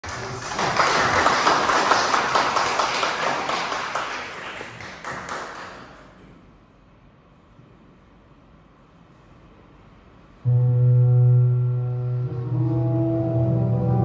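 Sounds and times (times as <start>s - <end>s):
audience applause: 0.0s - 6.1s.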